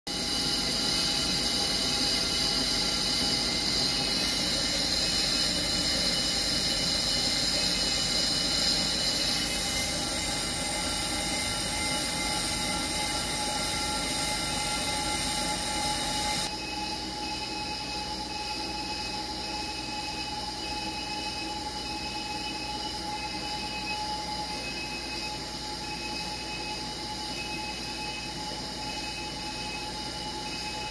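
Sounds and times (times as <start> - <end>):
lathe motor running: 0.1 - 16.6
metallic machining: 0.1 - 25.1
high ringing tones: 0.1 - 30.9.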